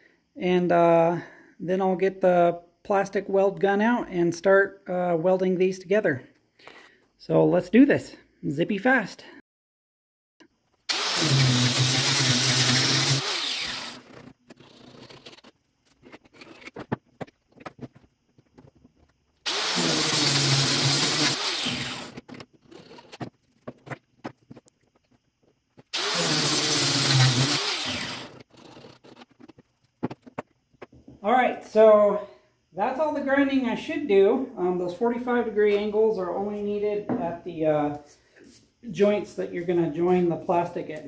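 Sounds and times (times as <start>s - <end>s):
angle grinder cutting plastic: 10.8s - 16.9s, 19.4s - 23.2s, 25.8s - 29.6s.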